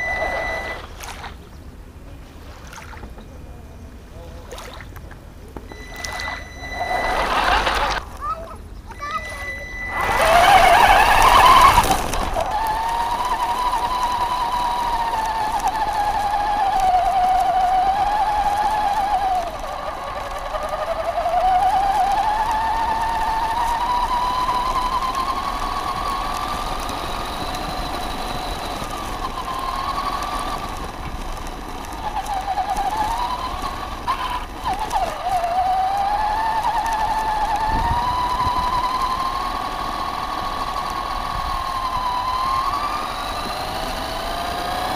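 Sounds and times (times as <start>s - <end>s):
electric motor whining: 0.0s - 1.4s, 5.6s - 44.9s
water splashing: 0.0s - 24.4s.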